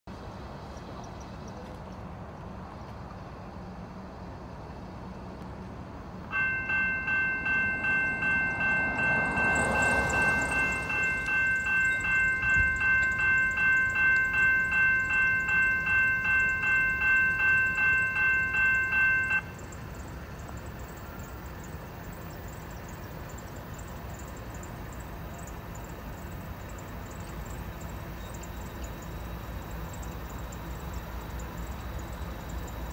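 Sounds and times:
railroad crossing bells ringing: 6.2s - 32.9s
car passing: 6.3s - 14.5s.

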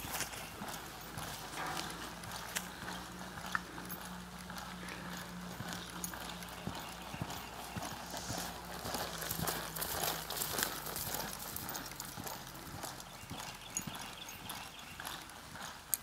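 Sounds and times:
horse hoofbeats on dirt: 0.0s - 16.0s.

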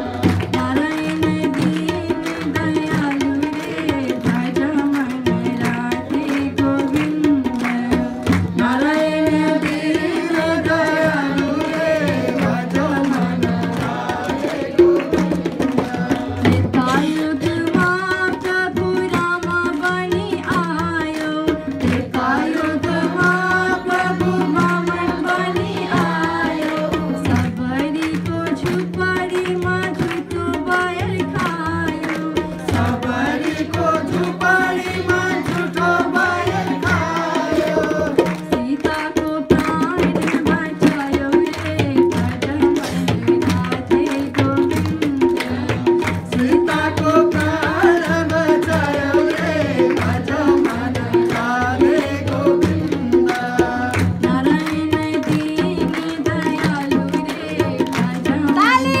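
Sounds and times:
tabla rhythm: 0.0s - 59.0s
woman singing devotional song: 0.0s - 59.0s.

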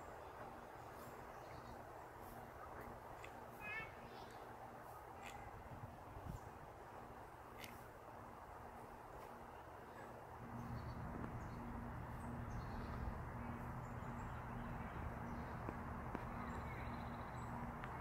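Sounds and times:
low pulsing hum: 10.4s - 18.0s.

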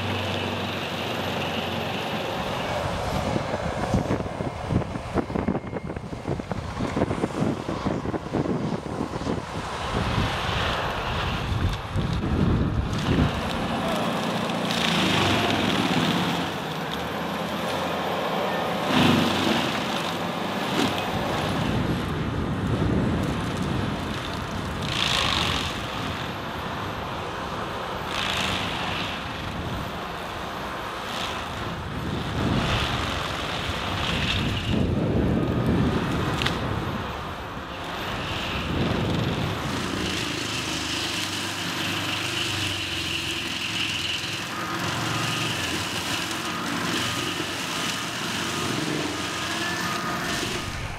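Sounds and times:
mulcher grinding through wood: 0.0s - 22.2s, 23.0s - 50.9s
tractor engine under load: 0.0s - 50.9s.

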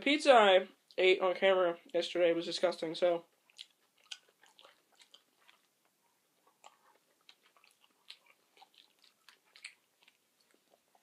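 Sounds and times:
person chewing with wet smacks: 3.3s - 11.0s.

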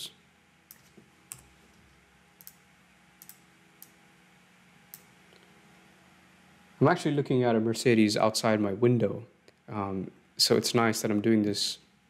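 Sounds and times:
faint room hum: 0.0s - 12.0s
computer mouse clicks: 0.7s - 1.5s, 2.4s - 2.6s, 3.2s - 4.0s.

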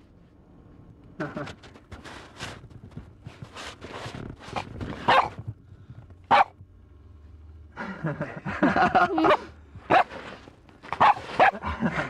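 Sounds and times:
young dog barking: 5.0s - 5.4s, 6.3s - 6.6s, 9.2s - 10.1s, 10.9s - 11.6s.

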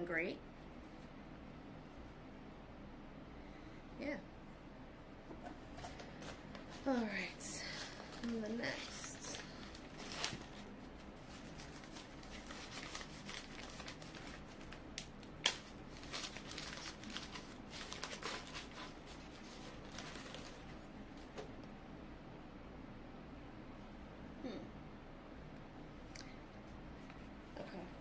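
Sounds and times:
packing paper crinkling: 6.2s - 21.3s
sharp paper crackle: 6.7s - 20.8s.

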